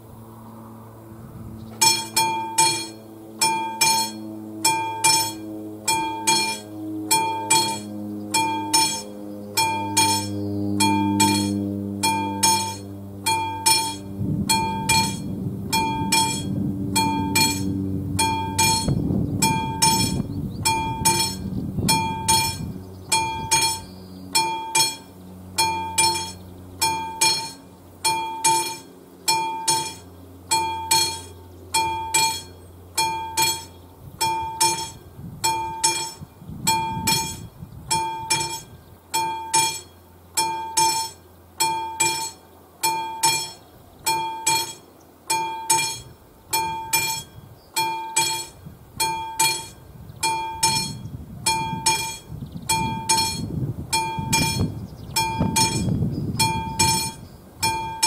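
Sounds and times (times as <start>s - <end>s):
level crossing bell ringing: 1.8s - 9.0s, 9.6s - 21.4s, 25.6s - 37.4s, 39.2s - 39.8s, 40.4s - 46.0s, 46.6s - 52.2s, 56.5s - 58.0s.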